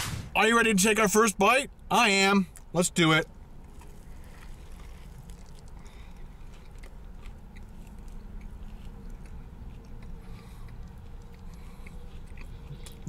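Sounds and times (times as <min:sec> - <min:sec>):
person chewing crunchy food: 0:03.5 - 0:13.0.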